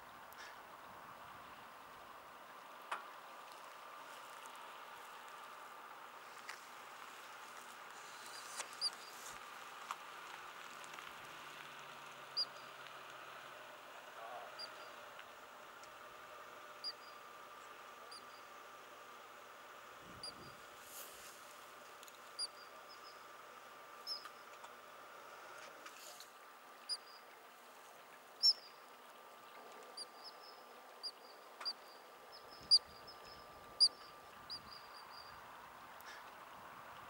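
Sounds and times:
ground squirrel alarm chirps: 22.4s - 23.2s, 24.0s - 24.3s, 28.4s - 28.8s, 30.0s - 35.4s.

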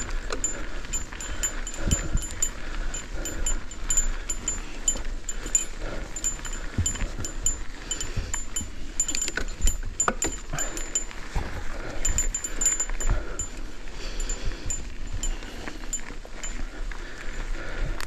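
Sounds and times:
bike chain clicking: 0.0s - 18.0s
wind rumble on microphone: 0.0s - 18.0s.

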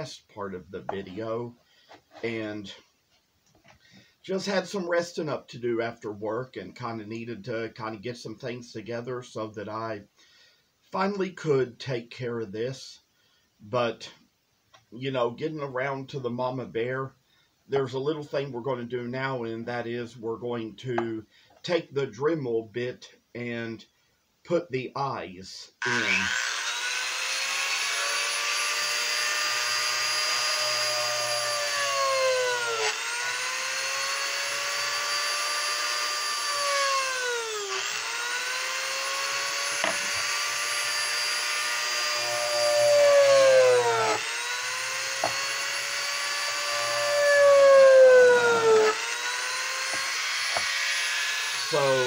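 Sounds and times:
rotary tool grinding wood: 25.8s - 52.0s.

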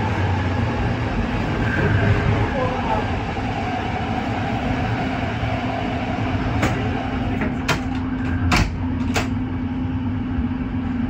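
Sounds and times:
train rumble and hum: 0.0s - 11.0s.

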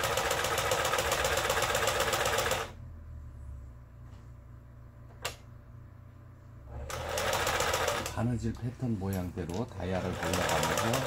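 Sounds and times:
sewing machine clattering: 0.0s - 2.7s, 6.9s - 8.3s, 9.5s - 11.0s
low hum: 2.7s - 6.8s.

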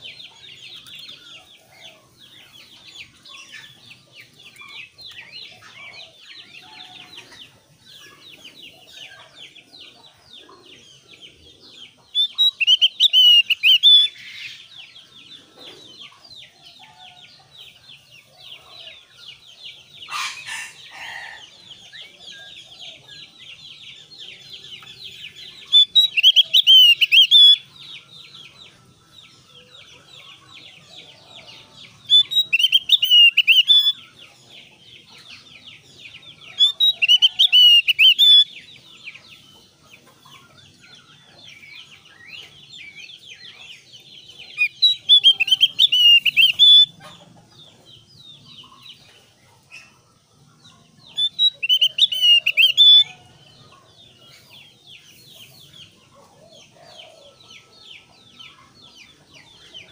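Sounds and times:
bird singing bright bursts: 12.2s - 14.2s, 25.7s - 27.7s, 32.1s - 34.0s, 44.6s - 46.9s.

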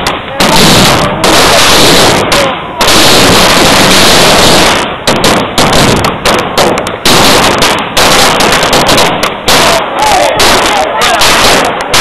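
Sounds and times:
sharp bangs: 0.0s - 12.0s.

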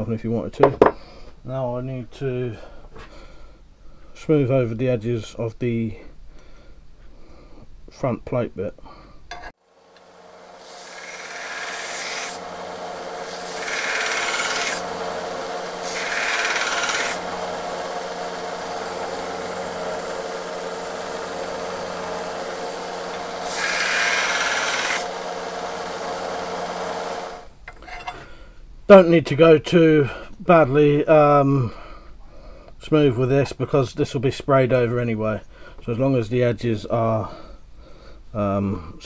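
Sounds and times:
belt sander running: 9.7s - 27.5s
metal grinding on sander belt: 10.0s - 28.1s.

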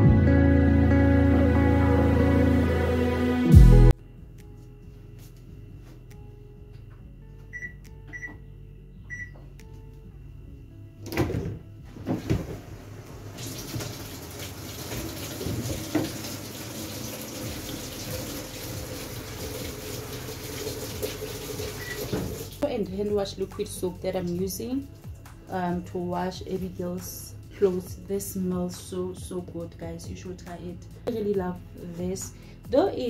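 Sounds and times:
control panel beeps: 7.5s - 8.4s, 9.1s - 9.4s
water rushing into drum: 12.0s - 22.6s.

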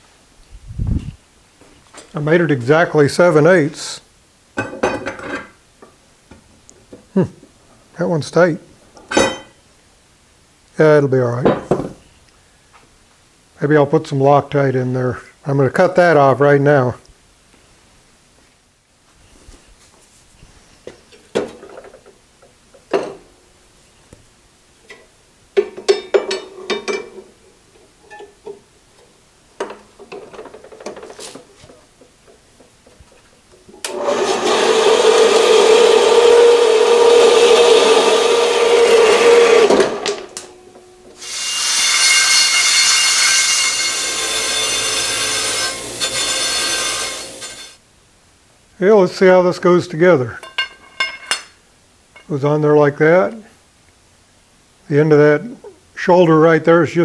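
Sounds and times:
bandsaw cutting metal: 33.8s - 47.8s
wire wheel grinder whine: 33.8s - 47.8s.

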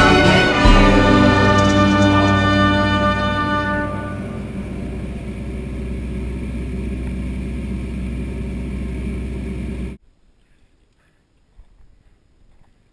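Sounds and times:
floatplane engine drone: 0.0s - 10.0s.

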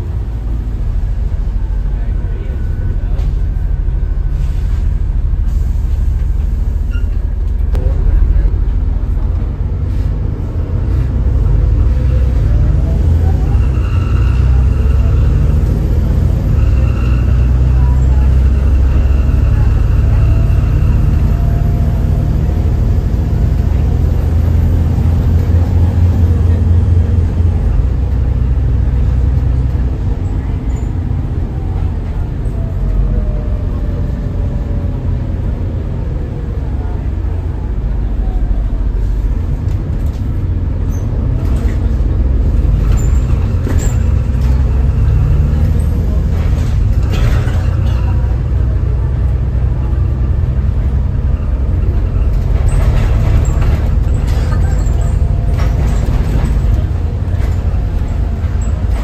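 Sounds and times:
bus diesel engine drone: 0.0s - 59.0s
road noise: 0.0s - 59.0s
rattles and clicks: 52.3s - 59.0s.

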